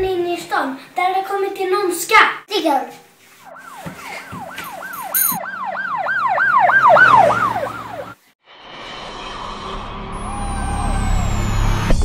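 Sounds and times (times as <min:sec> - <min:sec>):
siren yelping: 0:03.4 - 0:08.2, 0:10.2 - 0:12.0.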